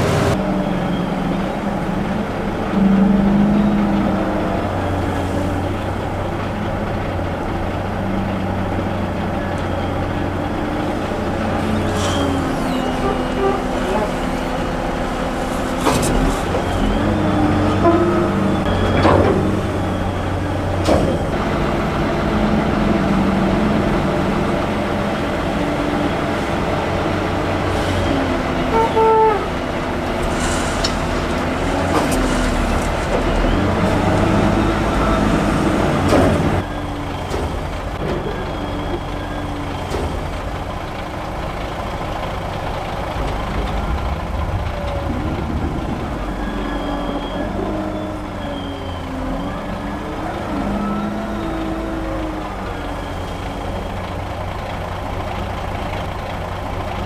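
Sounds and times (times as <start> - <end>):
diesel engine revving: 0.0 - 57.0
brief high tone: 44.6 - 53.4.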